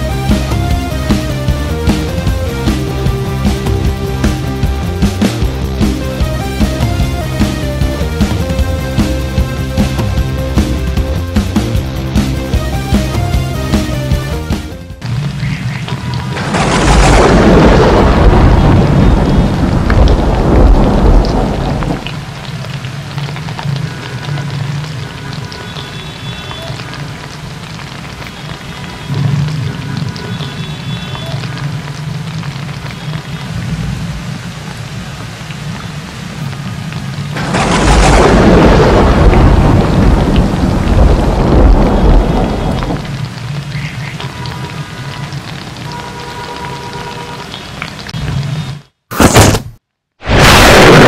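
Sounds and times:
rain falling: 0.0 - 48.8, 50.2 - 51.0
thunder rolling: 16.1 - 22.3, 37.3 - 43.2, 50.2 - 51.0.

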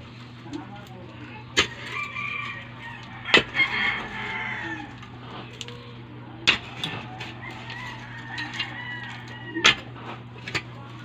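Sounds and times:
iron bar striking stony soil: 3.3 - 4.2, 6.4 - 7.4, 9.6 - 10.7.

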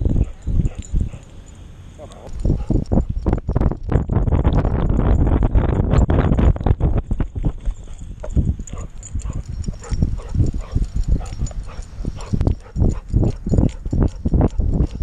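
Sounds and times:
dog panting: 2.0 - 3.1, 7.7 - 15.0.

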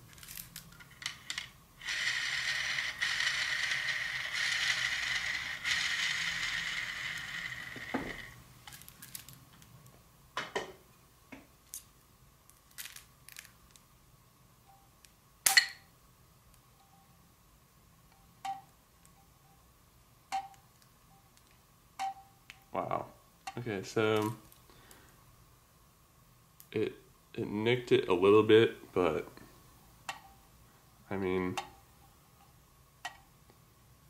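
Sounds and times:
arrow spinner whirring: 1.8 - 8.4.

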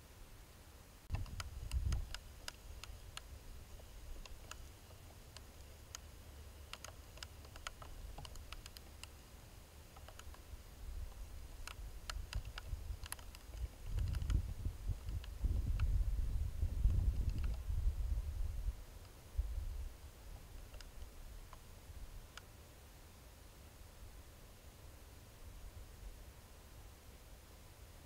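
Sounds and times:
faint hiss: 0.0 - 28.0
sharp clicks and crackles: 1.1 - 3.3, 4.1 - 9.2, 9.9 - 10.4, 11.1 - 16.0, 16.8 - 17.6, 20.6 - 21.7.

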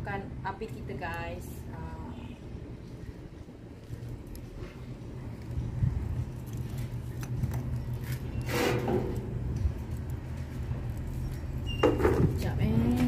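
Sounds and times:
steady low rumble: 0.0 - 13.0
charcoal clinking and scraping: 6.5 - 13.0
hissing scrape: 8.4 - 9.2.

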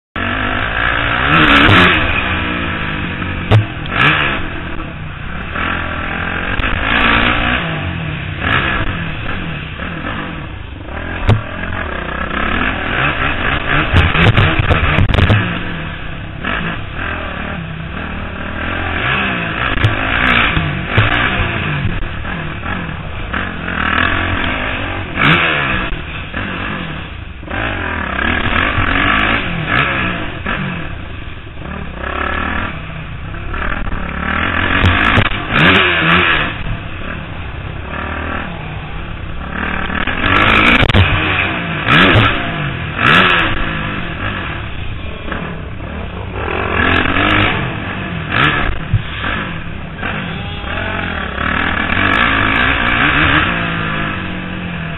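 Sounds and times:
motorbike engine revving: 0.2 - 54.9
sharp knocks: 11.2 - 11.6.

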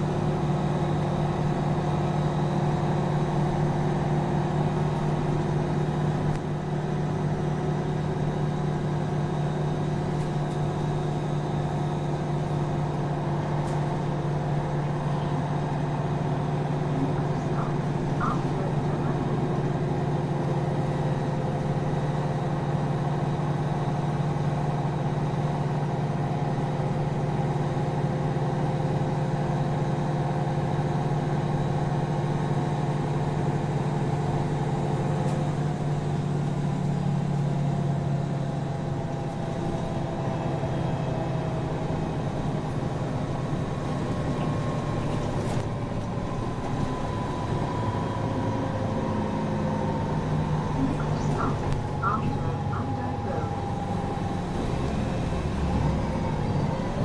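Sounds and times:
bus engine hum: 0.0 - 57.0
road noise: 35.2 - 57.0
whine shifting in pitch: 46.8 - 57.0.

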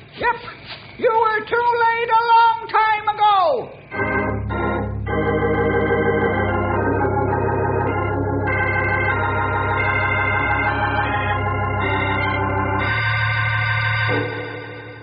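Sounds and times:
organ chords: 3.8 - 15.0.

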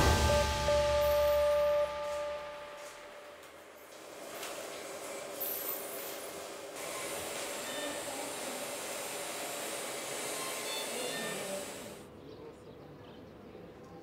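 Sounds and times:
faint short high tones: 0.0 - 3.4.

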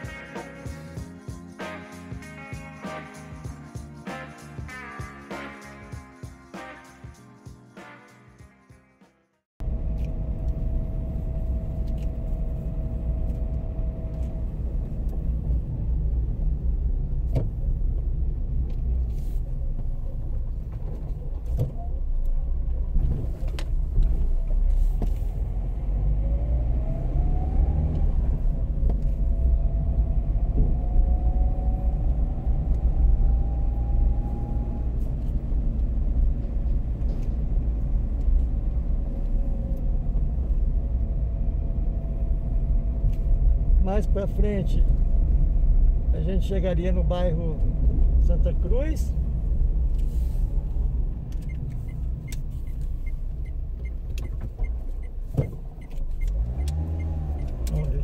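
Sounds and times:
faint whine rising in pitch: 9.6 - 16.0, 25.7 - 35.0
car engine and road rumble: 9.6 - 58.0.

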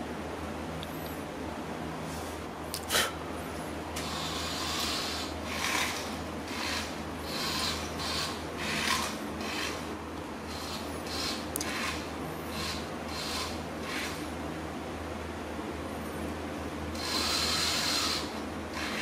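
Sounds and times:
toy car motor whirring: 4.0 - 9.9, 10.5 - 14.2, 17.0 - 19.0.

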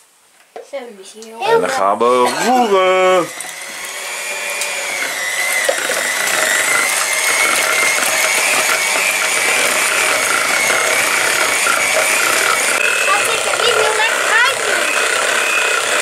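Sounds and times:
electric mixer whining: 1.8 - 16.0.

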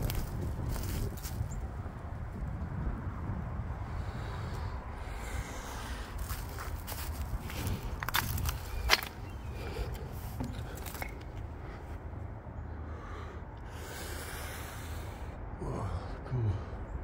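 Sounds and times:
footsteps crunching over rubble: 0.0 - 1.6, 6.2 - 11.6.

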